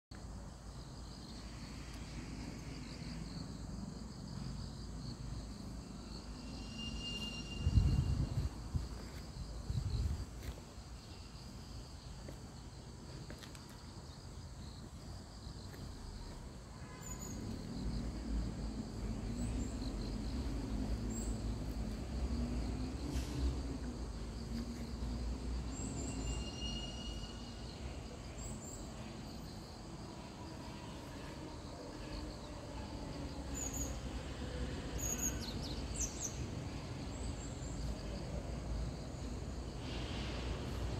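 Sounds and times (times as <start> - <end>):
insects trilling: 0.2 - 40.9
short high insect chirps: 6.1 - 10.1.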